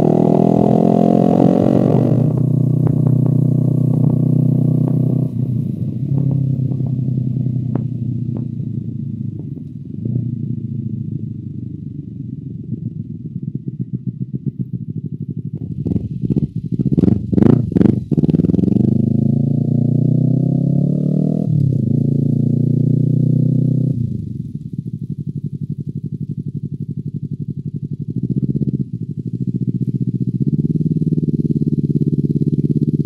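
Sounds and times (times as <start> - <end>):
motorcycle engine burbling: 0.0 - 33.0
exhaust pops and crackles: 1.4 - 10.3, 11.8 - 18.8.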